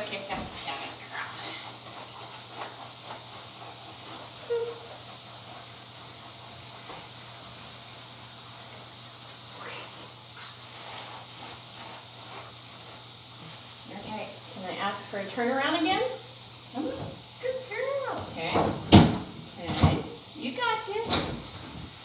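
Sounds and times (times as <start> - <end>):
hands scrubbing wet dog coat: 0.0 - 15.7
steady hiss: 0.0 - 22.0.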